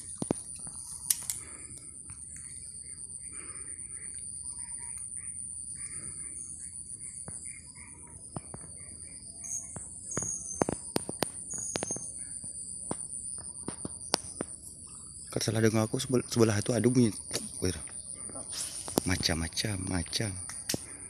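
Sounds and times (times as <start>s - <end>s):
small birds chirping: 0.0s - 12.7s.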